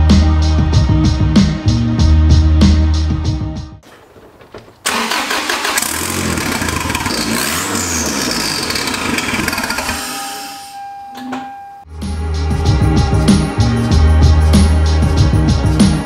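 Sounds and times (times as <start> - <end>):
car engine starting and revving: 4.8 - 10.2.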